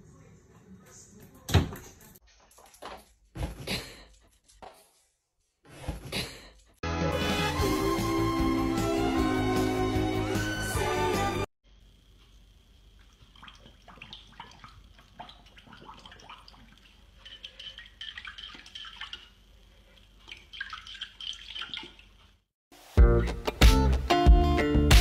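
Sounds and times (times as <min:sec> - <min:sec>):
small water splashes and drips: 0:13.0 - 0:22.4.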